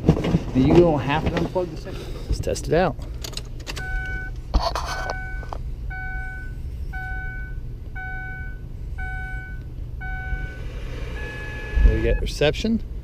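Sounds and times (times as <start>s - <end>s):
low steady rumble: 0.0s - 13.0s
dashboard warning chime: 3.8s - 4.4s, 5.0s - 12.4s.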